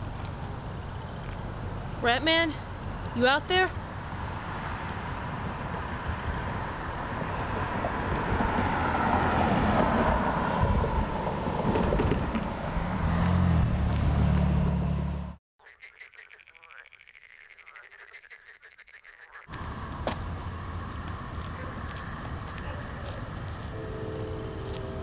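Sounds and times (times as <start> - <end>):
frogs calling in chorus: 15.6 - 19.5.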